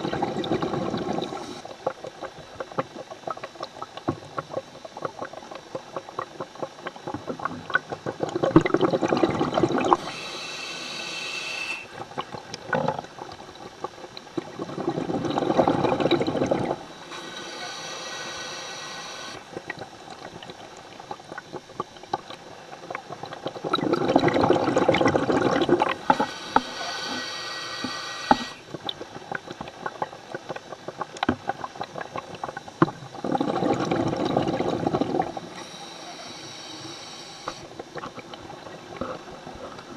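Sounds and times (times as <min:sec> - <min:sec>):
exhaled bubbles rushing: 0:00.0 - 0:36.2
regulator inhalation hiss: 0:09.9 - 0:12.0, 0:16.8 - 0:19.4, 0:25.9 - 0:28.7, 0:35.4 - 0:37.8.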